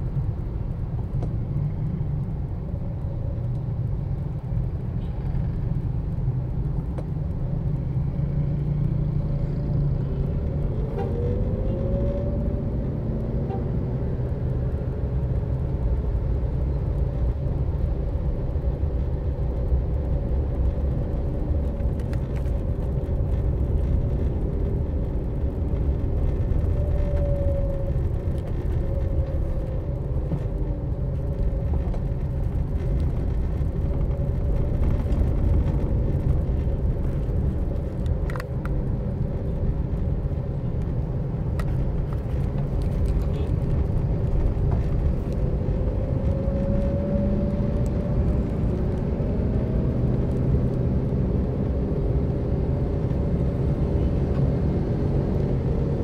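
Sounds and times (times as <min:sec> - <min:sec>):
vehicle engine and road noise: 0:00.0 - 0:56.0.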